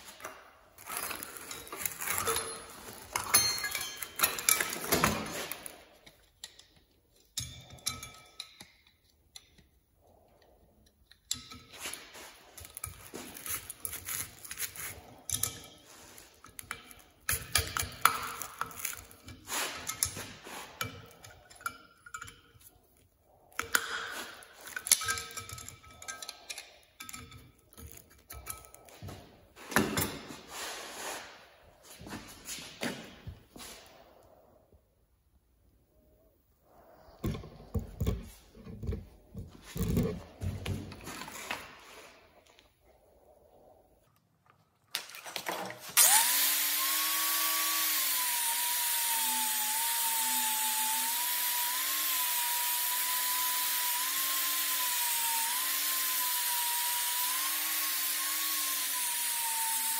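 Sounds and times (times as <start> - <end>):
metal tools clinking and scraping: 0.0 - 9.7, 10.8 - 30.8.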